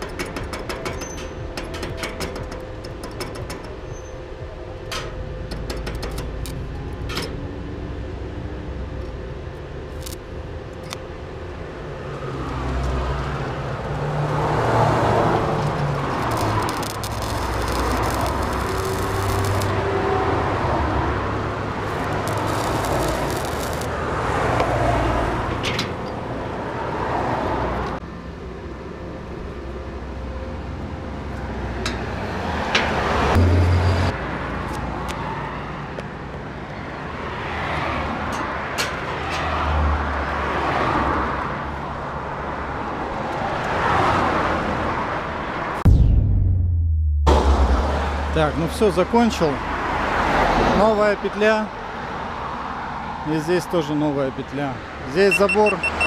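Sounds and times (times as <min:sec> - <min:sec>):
welding arc crackling and sizzling: 0:09.9 - 0:10.2, 0:15.3 - 0:19.8, 0:21.8 - 0:24.0.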